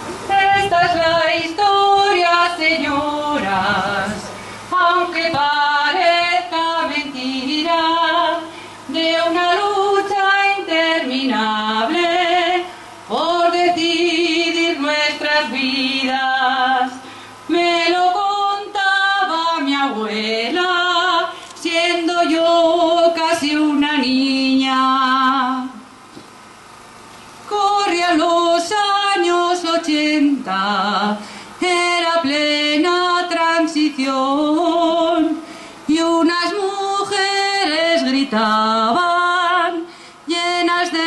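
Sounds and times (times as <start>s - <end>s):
woman singing into a microphone: 0.2s - 25.9s, 27.5s - 41.0s.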